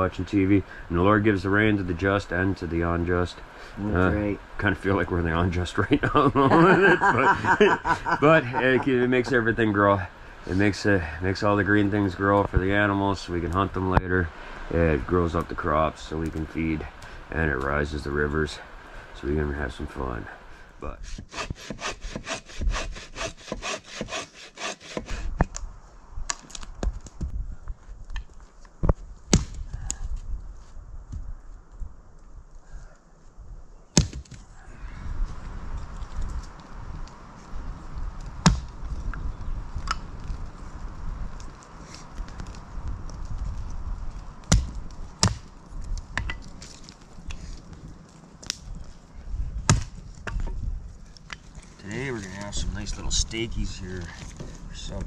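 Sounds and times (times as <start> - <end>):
hand saw cutting log: 21.1 - 25.3
hatchet chopping wood: 21.3 - 25.2, 34.0 - 34.4, 38.4 - 38.7, 44.5 - 45.5, 49.7 - 50.5.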